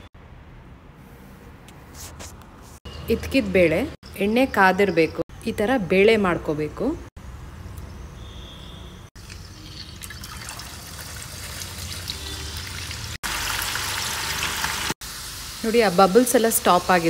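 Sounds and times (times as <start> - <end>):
beans sizzling in hot oil: 10.7 - 17.0.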